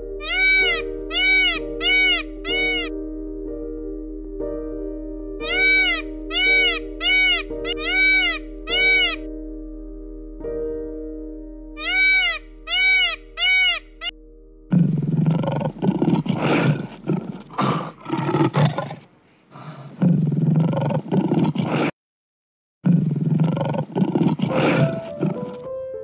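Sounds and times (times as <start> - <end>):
quick high chirping calls: 0.2 - 2.9, 5.4 - 9.2, 11.8 - 14.1
big cat roaring and growling: 14.7 - 21.9, 22.8 - 25.6.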